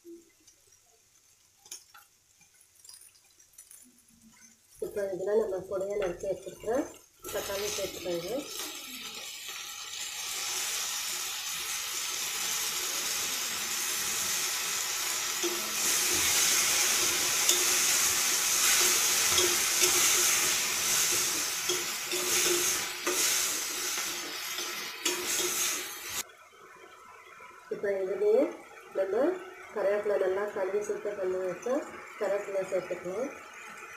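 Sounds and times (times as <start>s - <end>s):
vegetables sizzling in oil: 0.0s - 33.9s
metal spoon stirring in pan: 5.8s - 26.2s.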